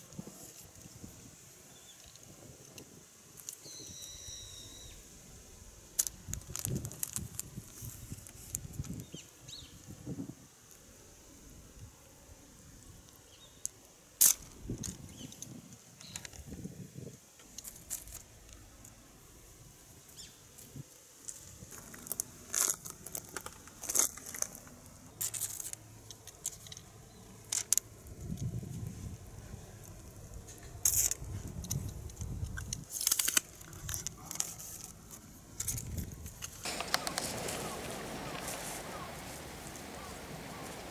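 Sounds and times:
crackling rustle: 0.0 - 40.9
cat rustling in grass: 32.2 - 40.9.

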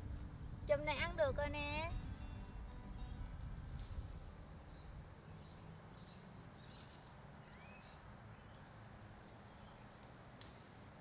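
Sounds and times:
low steady rumble: 0.0 - 4.9
faint bird chirps: 4.5 - 8.9.

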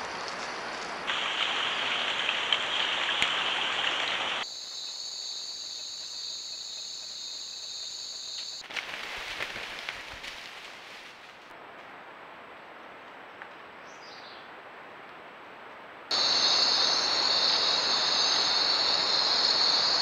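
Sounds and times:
dense steady hiss: 0.0 - 9.5, 10.3 - 20.0
light ticks in leaf litter: 0.0 - 11.5
insects trilling: 4.4 - 8.6, 16.1 - 20.0.

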